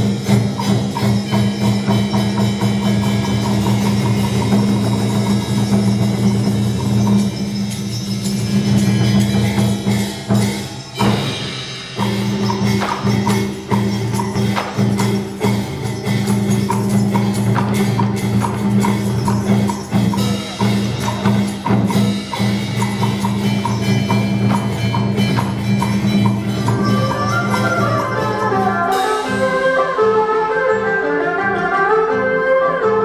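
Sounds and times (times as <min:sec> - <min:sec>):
wood block beat: 0:00.0 - 0:29.8.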